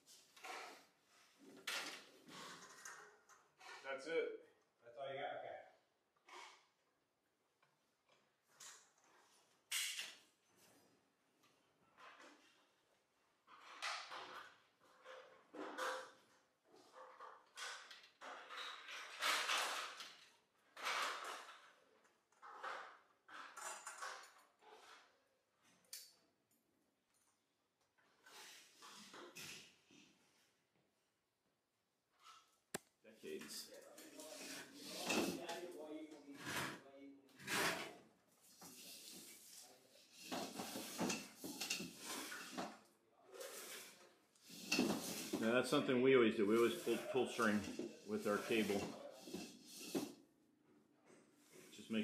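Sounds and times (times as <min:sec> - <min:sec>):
cable rustling and scraping: 0:33.6 - 0:50.3
cable bundles scraping: 0:43.3 - 0:50.1.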